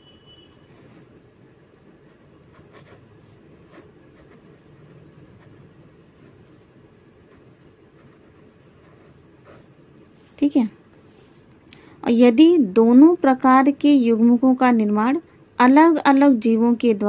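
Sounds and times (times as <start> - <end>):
low background noise: 0.0 - 17.0
marker pen scratching on surface: 0.6 - 11.5.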